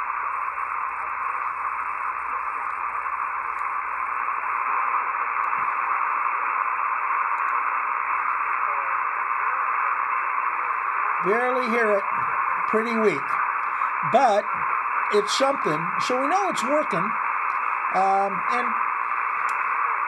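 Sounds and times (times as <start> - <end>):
shortwave receiver hiss: 0.0 - 20.0
weak radio station: 0.0 - 20.0.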